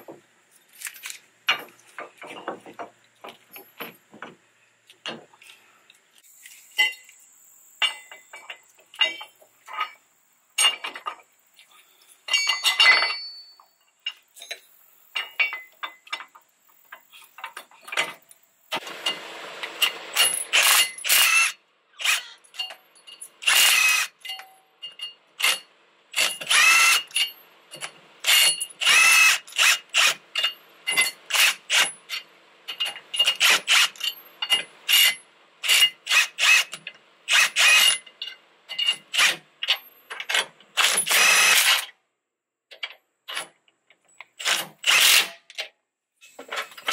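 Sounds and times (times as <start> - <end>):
impact wrench bursts: 18.7 - 22.4, 23.4 - 24.3, 26.2 - 27.3, 28.2 - 32.2, 32.8 - 38.0, 40.8 - 41.9, 44.4 - 45.4.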